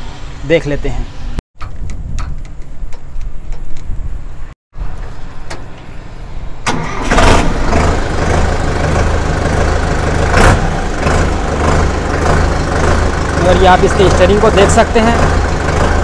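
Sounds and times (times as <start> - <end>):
tractor diesel engine idling: 6.7 - 16.0.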